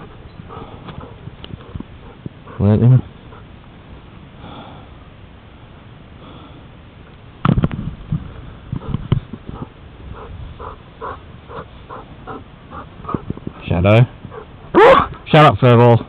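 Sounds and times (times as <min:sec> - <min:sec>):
dog panting: 0:00.0 - 0:03.5, 0:08.8 - 0:13.4, 0:14.3 - 0:14.6
dog sniffing: 0:00.0 - 0:03.5, 0:08.8 - 0:13.3.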